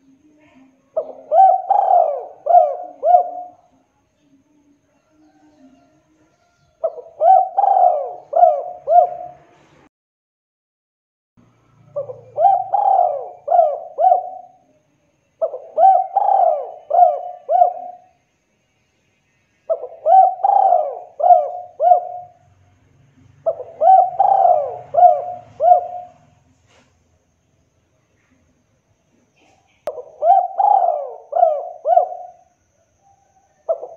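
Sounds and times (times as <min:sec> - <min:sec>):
dove cooing: 0:00.9 - 0:03.7, 0:06.8 - 0:09.6, 0:11.9 - 0:14.7, 0:15.4 - 0:18.2, 0:19.7 - 0:22.5, 0:23.2 - 0:26.5, 0:29.4 - 0:33.9.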